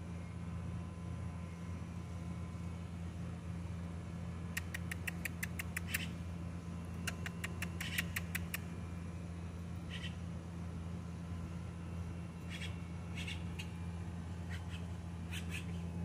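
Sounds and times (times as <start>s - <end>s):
low hum: 0.0s - 16.0s
bird clicking calls: 4.5s - 6.2s, 7.0s - 8.7s.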